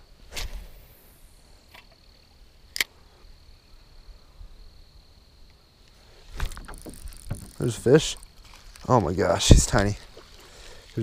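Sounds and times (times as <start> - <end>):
faint small ticks: 5.4 - 9.1.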